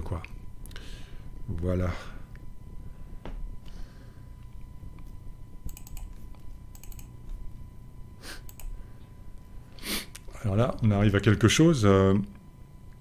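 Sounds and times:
computer keyboard clicking: 0:05.7 - 0:07.1, 0:08.5 - 0:08.8.

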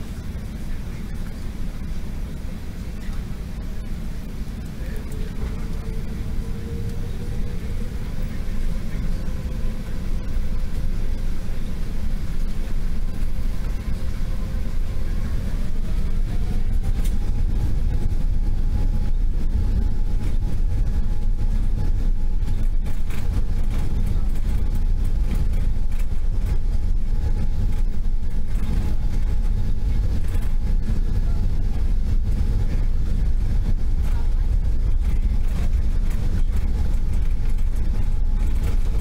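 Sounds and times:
jet engines rumbling with whine: 0:00.0 - 0:39.0.

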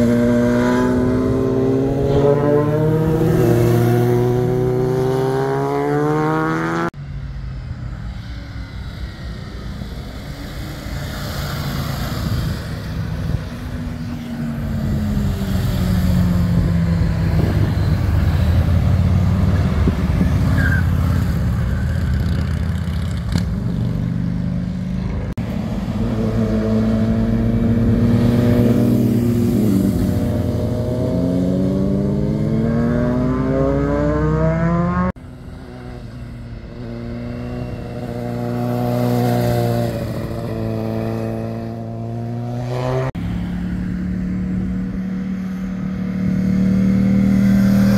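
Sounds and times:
motorcycle accelerating: 0:00.0 - 0:07.0, 0:08.2 - 0:47.9
motorcycles passing: 0:00.0 - 0:47.9.

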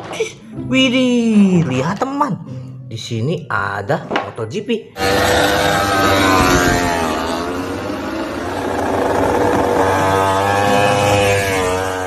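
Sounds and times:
motorcycle engine at high revs: 0:05.0 - 0:12.0.

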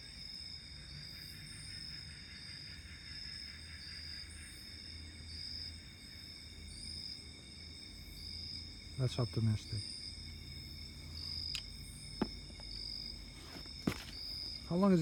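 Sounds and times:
night insects trilling: 0:00.0 - 0:15.0.

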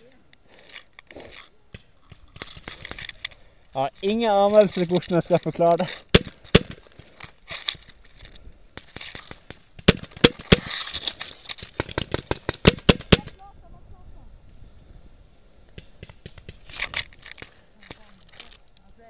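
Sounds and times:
paintball marker shots: 0:06.1 - 0:06.9, 0:08.8 - 0:10.8, 0:11.8 - 0:13.3, 0:15.7 - 0:16.7.

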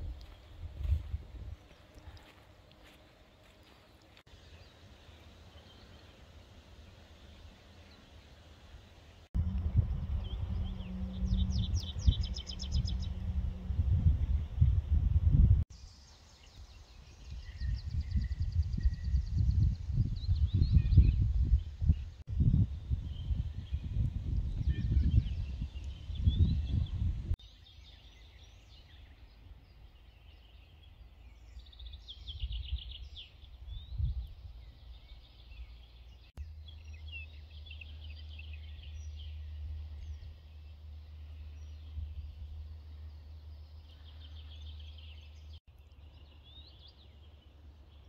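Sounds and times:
wind buffeting microphone: 0:00.0 - 0:01.8, 0:09.4 - 0:15.7, 0:16.9 - 0:27.4, 0:31.4 - 0:35.6
songbirds singing: 0:00.0 - 0:48.0
steady low rumble: 0:09.2 - 0:15.7.

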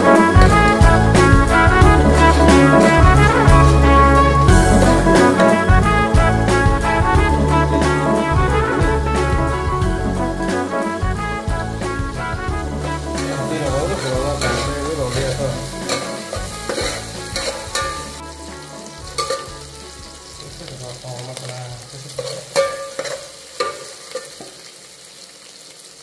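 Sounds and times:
onions sizzling in hot oil: 0:00.0 - 0:09.6, 0:10.4 - 0:26.0
metal spoon scraping a pot: 0:13.2 - 0:18.2, 0:19.1 - 0:19.7, 0:22.1 - 0:24.5.

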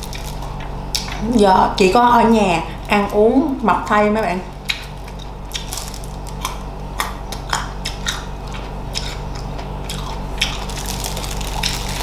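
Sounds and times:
crunchy food chewing: 0:00.0 - 0:01.2, 0:04.5 - 0:12.0
steady low hum: 0:00.0 - 0:12.0
wet mouth clicks: 0:06.4 - 0:10.6.

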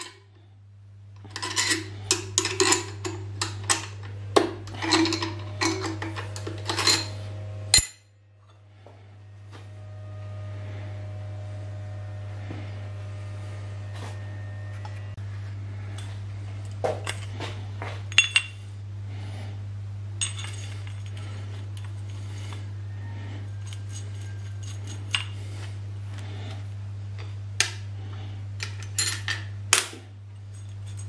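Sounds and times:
steady low hum: 0:00.0 - 0:31.0
metal parts clinking and knocking: 0:01.2 - 0:04.1, 0:04.7 - 0:07.2, 0:18.1 - 0:18.6, 0:20.2 - 0:22.2, 0:23.6 - 0:25.4, 0:30.4 - 0:31.0.

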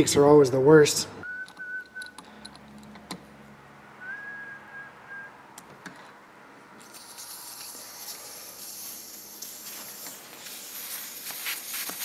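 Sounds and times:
person whistling: 0:01.2 - 0:02.2, 0:04.0 - 0:05.4
air hissing from tire valve: 0:06.8 - 0:12.0.

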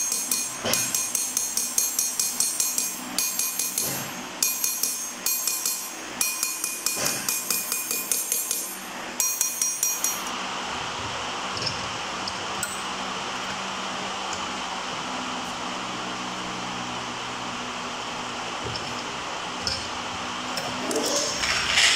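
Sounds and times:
hammer striking copper pot: 0:00.0 - 0:10.3.

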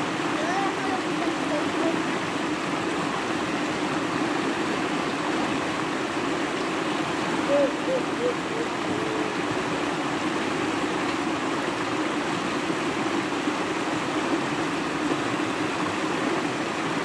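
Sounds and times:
river rushing over rocks: 0:00.0 - 0:17.0.

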